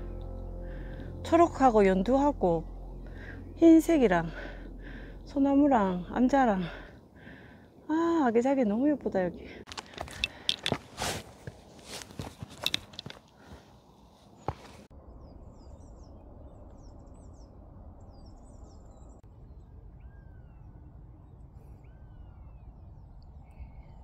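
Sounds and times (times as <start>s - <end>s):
low wind rumble: 0.0s - 24.0s
footsteps on rock: 9.7s - 13.6s, 14.4s - 14.9s.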